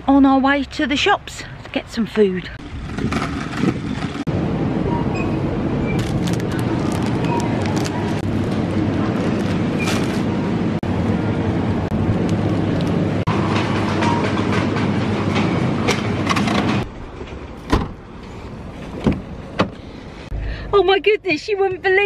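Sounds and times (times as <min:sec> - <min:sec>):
store hum: 0:02.6 - 0:17.0.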